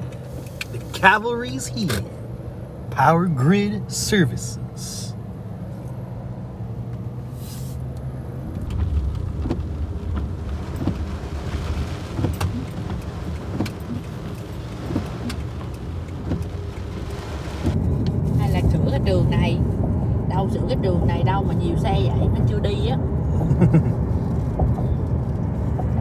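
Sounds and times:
car cabin low rumble: 0.0s - 26.0s
tyres hissing on wet pavement: 7.3s - 7.9s, 8.8s - 17.8s
raindrops tapping on windshield: 8.5s - 18.6s.

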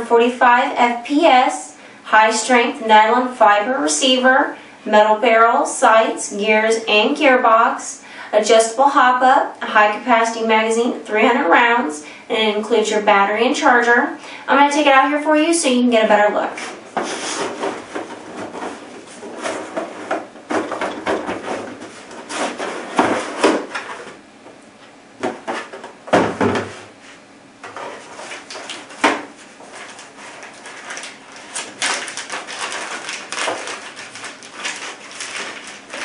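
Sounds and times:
cardboard box lid scraping: 16.6s - 24.2s
paper rustling: 16.6s - 24.2s, 27.7s - 36.0s.

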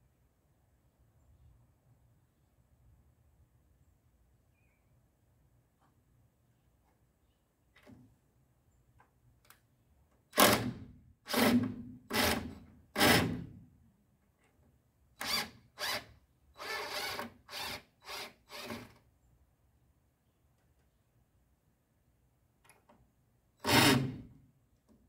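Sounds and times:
cordless drill driving screws: 10.4s - 13.4s, 15.2s - 19.0s, 23.6s - 24.2s.

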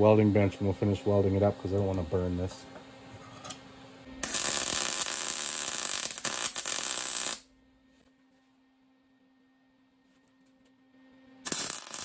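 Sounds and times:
welding arc crackling: 4.2s - 7.5s, 11.4s - 12.0s.

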